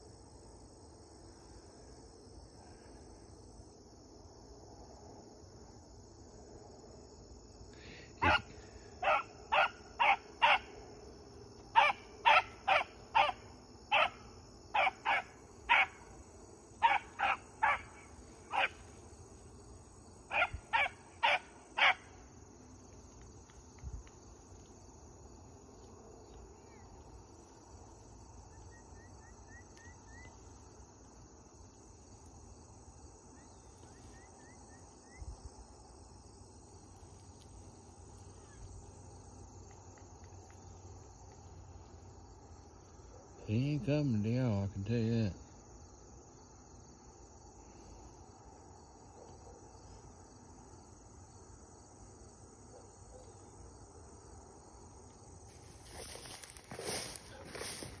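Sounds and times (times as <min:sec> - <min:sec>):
crickets humming: 0:00.0 - 0:58.0
animal short loud calls: 0:08.2 - 0:10.6.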